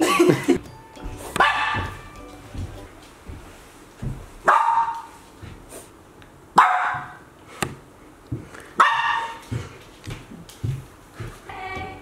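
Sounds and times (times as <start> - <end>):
dog barking: 1.4 - 2.0, 4.4 - 5.1, 6.6 - 7.2, 8.8 - 9.4.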